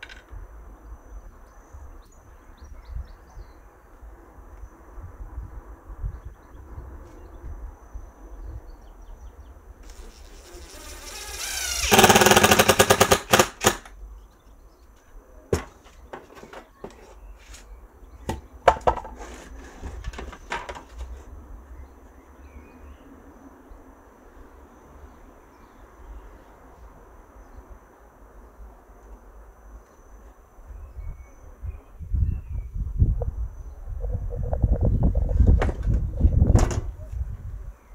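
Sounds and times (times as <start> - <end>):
cordless drill whining and rattling: 9.8 - 13.9.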